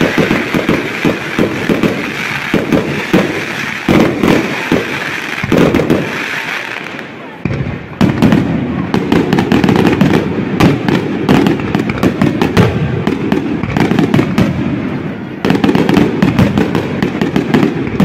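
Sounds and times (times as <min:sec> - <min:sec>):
firework shells bursting: 0:00.0 - 0:06.4.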